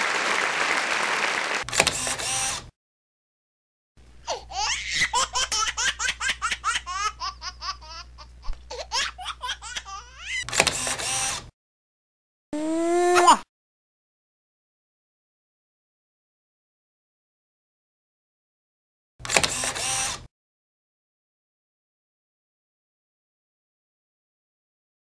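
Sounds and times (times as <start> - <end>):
applause: 0.0 - 1.7
baby giggling: 4.3 - 10.4
baby sliding vocal sound: 12.6 - 13.4.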